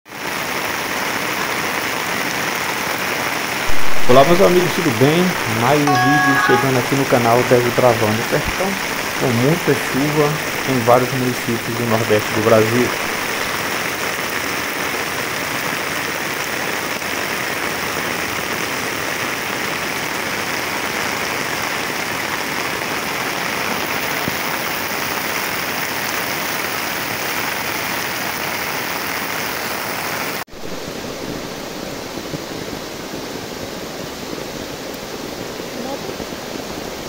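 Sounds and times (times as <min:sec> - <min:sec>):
runoff cascading down rocks: 0:00.1 - 0:05.9, 0:06.7 - 0:37.0
floodwater rushing: 0:00.1 - 0:37.0.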